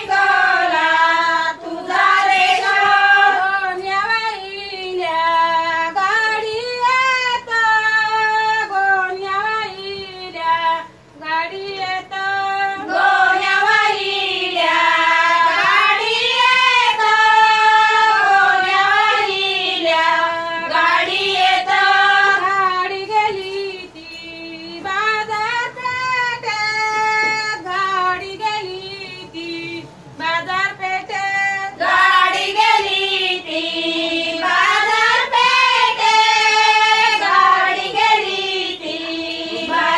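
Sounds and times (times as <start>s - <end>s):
women singing folk song: 0.0s - 39.9s.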